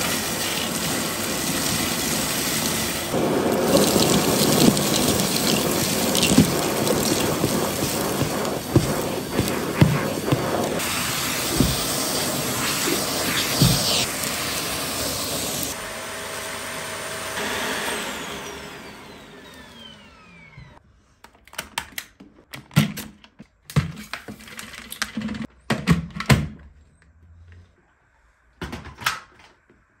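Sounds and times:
vacuum cleaner motor winding down: 0:00.0 - 0:20.8.

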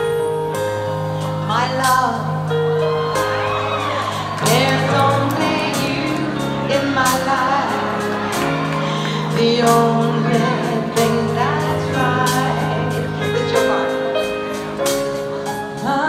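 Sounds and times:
live band playing slow ballad: 0:00.0 - 0:16.0
woman singing: 0:04.4 - 0:14.4, 0:15.7 - 0:16.0.

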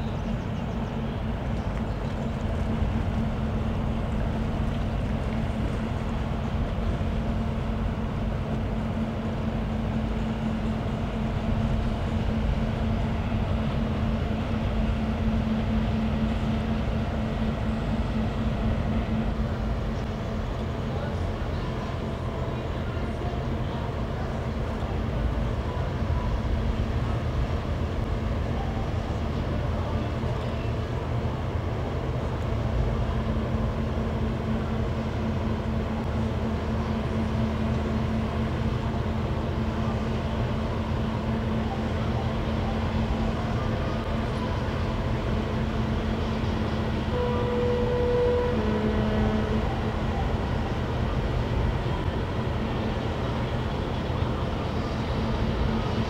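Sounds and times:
boat engines rumbling: 0:00.0 - 0:56.0.

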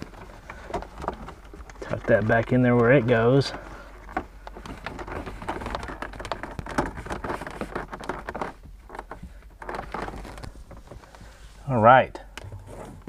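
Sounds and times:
wire scraping and rustling: 0:00.0 - 0:13.0.

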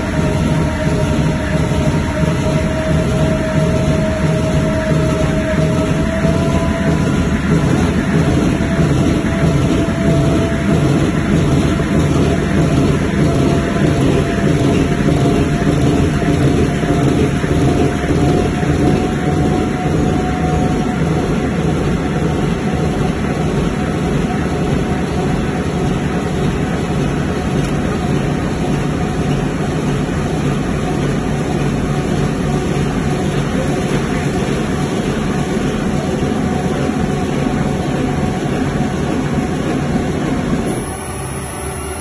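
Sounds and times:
veneer reeling machine running: 0:00.0 - 0:42.0.

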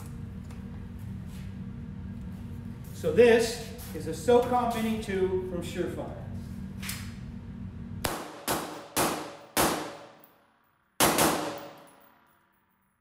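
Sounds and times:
suppressed rifle shots: 0:11.0 - 0:11.8.

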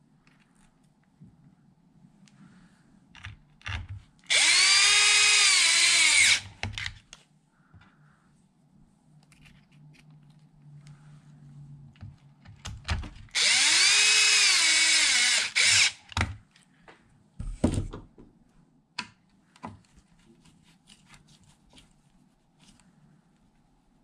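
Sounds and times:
cordless drill whining: 0:04.3 - 0:06.5, 0:13.3 - 0:16.1
tools knocking and thudding: 0:17.4 - 0:18.4.

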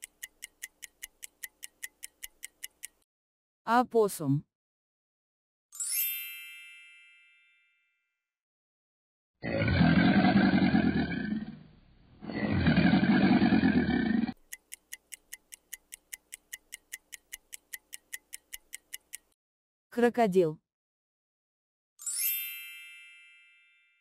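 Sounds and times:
clock ticking: 0:00.0 - 0:03.0, 0:14.4 - 0:19.4
crocodile bellowing: 0:09.4 - 0:11.6, 0:12.2 - 0:14.4.

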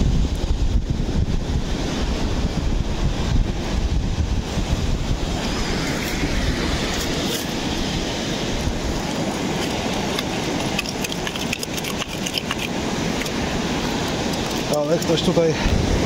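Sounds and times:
beach surf: 0:00.0 - 0:16.0
wind rumbling on microphone: 0:00.0 - 0:16.0.

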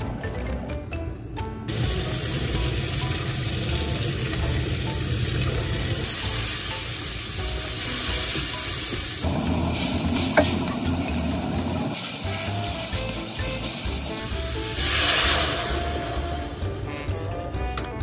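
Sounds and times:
kitchen blowtorch hissing: 0:01.7 - 0:17.0
vegetables sizzling in a pan: 0:01.7 - 0:17.0.

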